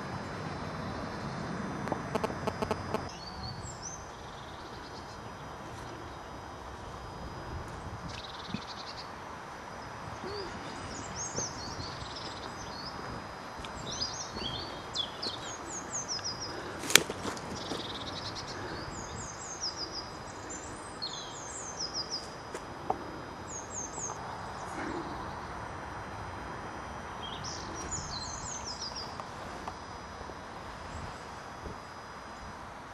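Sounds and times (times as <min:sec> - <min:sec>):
songbirds chirping: 0:00.0 - 0:32.9
steady background hiss: 0:00.0 - 0:32.9.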